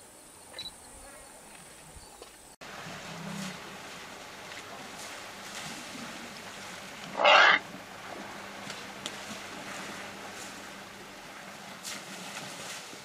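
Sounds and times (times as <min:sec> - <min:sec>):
elephant trumpeting: 0:07.1 - 0:07.6.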